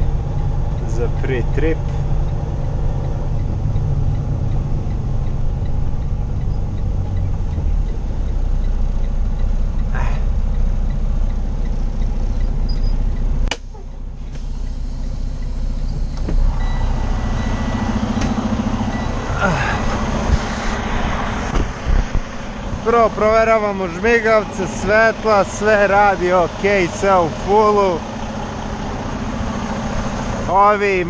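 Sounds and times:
diesel engine idling: 0:00.0 - 0:31.0
sharp click: 0:12.7 - 0:14.0.

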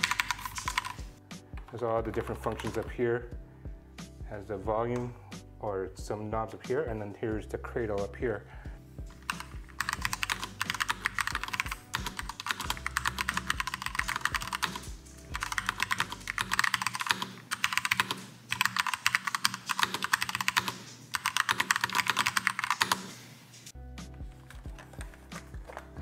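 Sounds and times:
mechanical keyboard typing: 0:00.0 - 0:02.9, 0:09.2 - 0:23.1.

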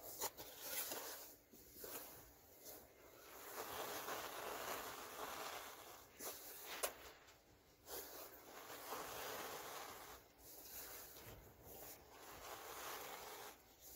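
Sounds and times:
powder pouring into plastic tub: 0:08.1 - 0:10.3, 0:12.1 - 0:13.7.

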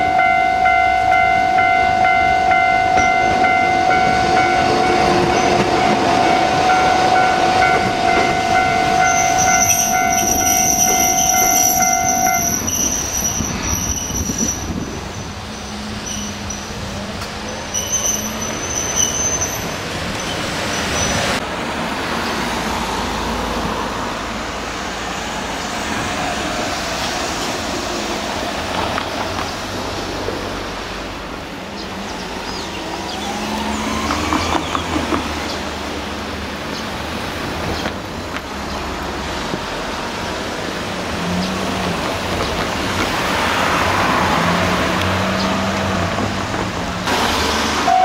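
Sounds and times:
road traffic: 0:00.0 - 0:48.0
train wheels squealing on rails: 0:02.5 - 0:21.4, 0:32.1 - 0:35.7
vehicle accelerating: 0:41.0 - 0:47.9.

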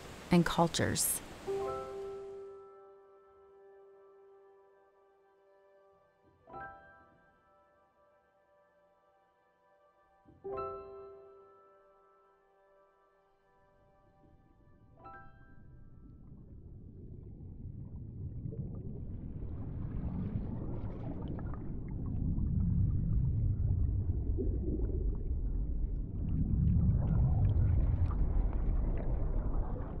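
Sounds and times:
underwater river current rumble: 0:14.2 - 0:30.0.

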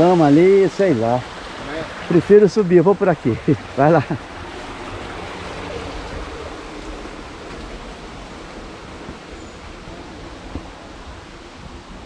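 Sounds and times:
water rushing down cascade: 0:00.0 - 0:12.0.

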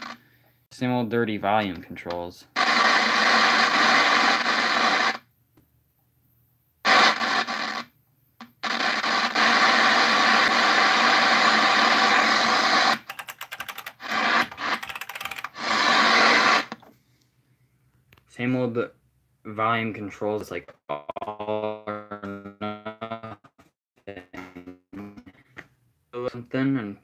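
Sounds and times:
television static crackling: 0:00.0 - 0:00.2, 0:02.5 - 0:05.3, 0:06.8 - 0:13.1, 0:13.7 - 0:16.8.

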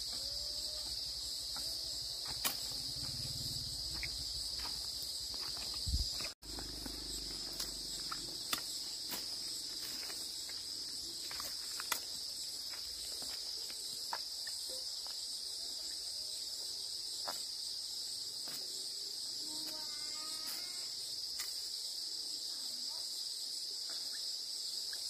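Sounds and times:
insects chirring: 0:00.0 - 0:25.0.

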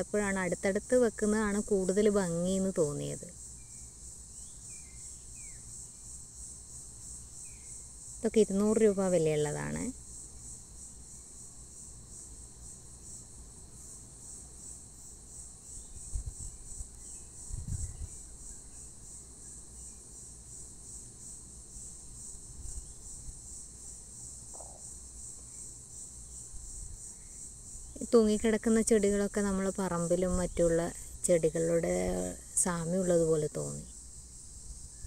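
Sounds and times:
crickets chirping: 0:00.0 - 0:35.0.

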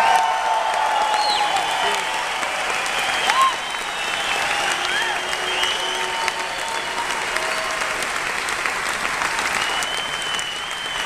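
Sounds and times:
audience applauding and cheering: 0:00.0 - 0:11.0
high whistles: 0:03.0 - 0:07.0, 0:09.5 - 0:11.0.

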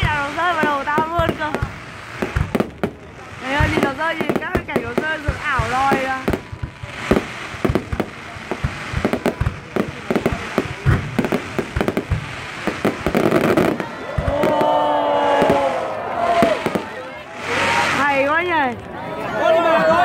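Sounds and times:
firework shells bursting: 0:00.0 - 0:14.7
firework crackling and hiss: 0:00.0 - 0:19.0.

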